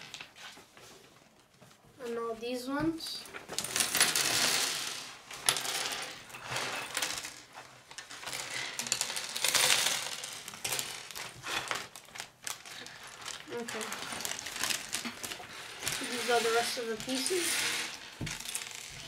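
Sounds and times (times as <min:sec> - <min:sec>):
plastic pieces clinking on table: 0:03.3 - 0:19.0
plastic bag crinkling: 0:07.8 - 0:19.0
paper sheet rustling: 0:11.0 - 0:18.8.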